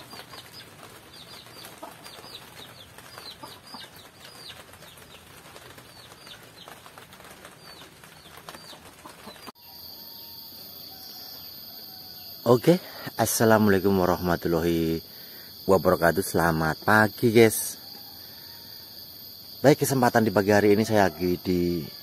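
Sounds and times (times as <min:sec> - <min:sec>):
small birds chirping: 0:00.0 - 0:18.3
background hiss: 0:00.0 - 0:22.0
high insect trill: 0:09.5 - 0:22.0.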